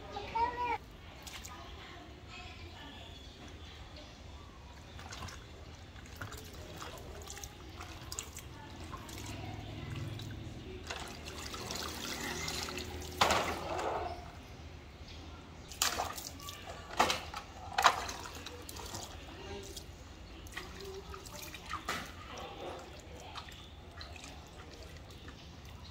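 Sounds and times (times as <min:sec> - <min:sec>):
water sloshing in a plastic basin: 0:00.3 - 0:01.9, 0:03.2 - 0:14.4, 0:15.7 - 0:25.9
garden hose trickling: 0:04.8 - 0:13.3, 0:17.8 - 0:25.9.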